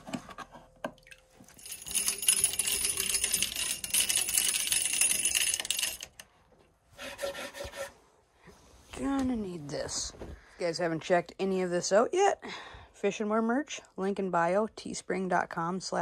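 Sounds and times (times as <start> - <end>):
fishing reel clicking rattle: 1.6 - 6.2.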